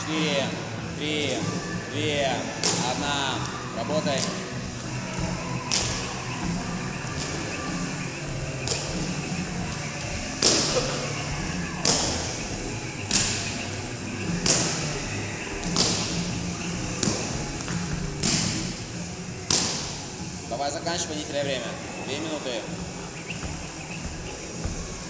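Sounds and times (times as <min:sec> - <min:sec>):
jump rope slapping floor: 0:08.3 - 0:11.1, 0:14.4 - 0:16.3.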